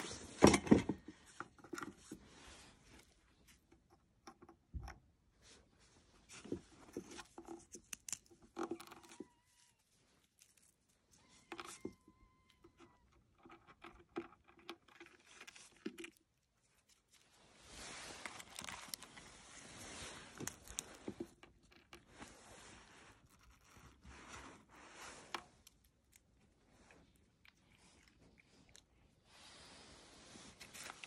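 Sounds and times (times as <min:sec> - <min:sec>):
faint rustling and crinkling: 0:00.0 - 0:31.0
small clicks and crackles: 0:06.3 - 0:29.2.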